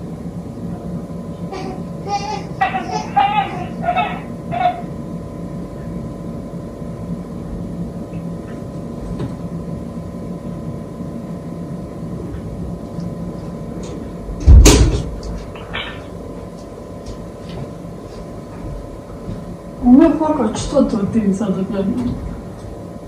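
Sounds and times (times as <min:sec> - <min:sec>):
low room hum: 0:00.0 - 0:23.0
loud sudden thump: 0:14.4 - 0:15.1.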